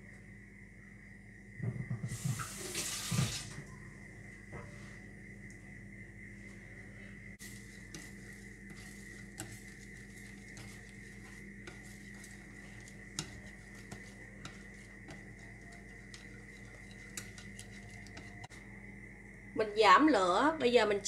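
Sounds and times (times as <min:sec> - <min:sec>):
chopsticks scraping metal pan: 0:07.4 - 0:18.5
chopsticks tapping pan: 0:07.4 - 0:18.6.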